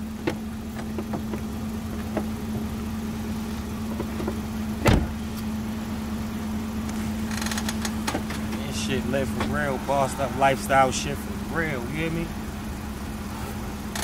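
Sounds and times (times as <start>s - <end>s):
car engine idling: 0.0s - 14.0s
car door slamming: 3.9s - 5.2s.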